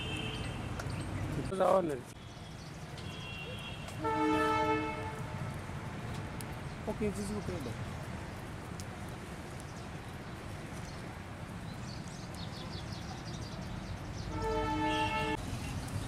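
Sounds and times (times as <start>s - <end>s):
outdoor background noise: 0.0s - 16.0s
vehicle horn: 3.0s - 5.4s, 14.3s - 15.4s.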